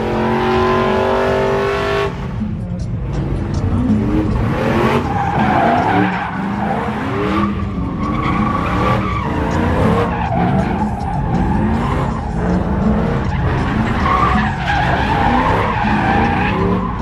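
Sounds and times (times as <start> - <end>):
truck engine revving: 0.0 - 17.0
tyres squealing: 4.4 - 17.0.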